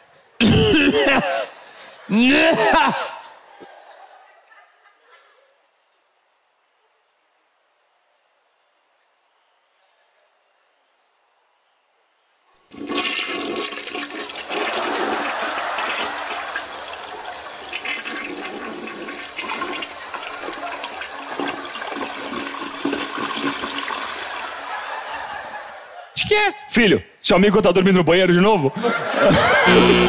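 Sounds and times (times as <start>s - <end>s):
toilet flush water rushing: 12.7s - 24.5s.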